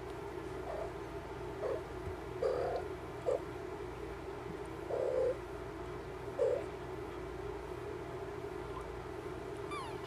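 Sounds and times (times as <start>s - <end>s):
newborn kittens mewing: 1.6s - 3.5s, 6.3s - 6.8s, 9.7s - 10.0s.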